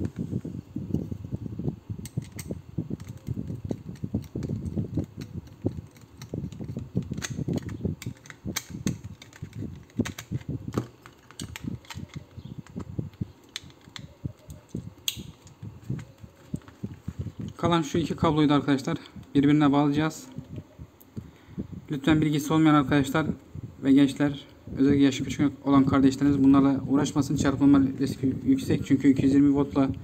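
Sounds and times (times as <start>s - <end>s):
sharp click: 13.5s - 15.6s.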